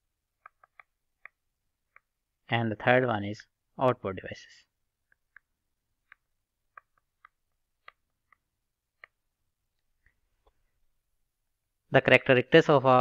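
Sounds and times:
stylus tapping on tablet: 0:00.4 - 0:02.2, 0:05.0 - 0:09.3.

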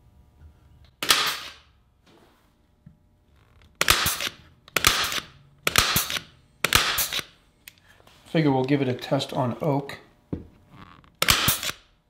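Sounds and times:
pneumatic stapler shots: 0:01.0 - 0:01.7, 0:03.8 - 0:07.4, 0:11.2 - 0:11.9.

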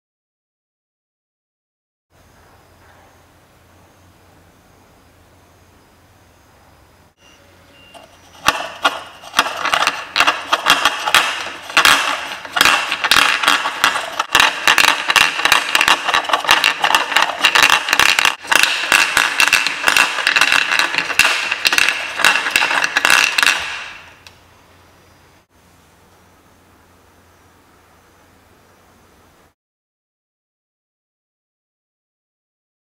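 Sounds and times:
stone rattling around wooden bowl: 0:08.0 - 0:24.2.

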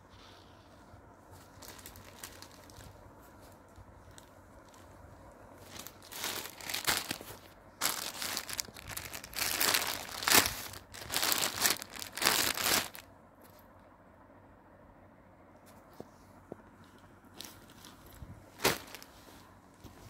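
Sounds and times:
plastic wrapping crinkling: 0:01.4 - 0:03.0, 0:05.6 - 0:13.0, 0:17.4 - 0:19.2.

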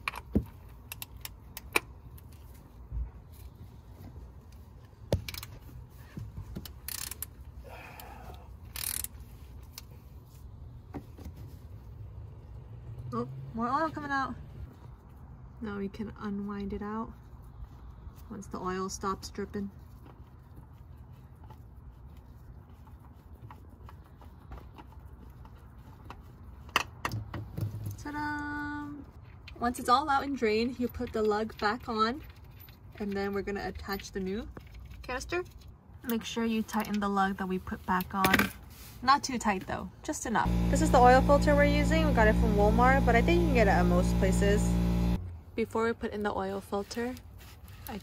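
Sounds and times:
low steady hum: 0:40.4 - 0:45.9
steady held tone: 0:40.5 - 0:45.2.

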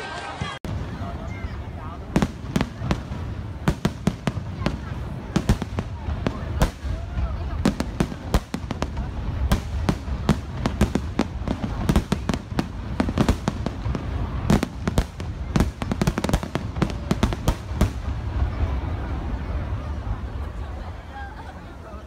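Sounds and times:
fireworks bursting: 0:00.4 - 0:20.6.

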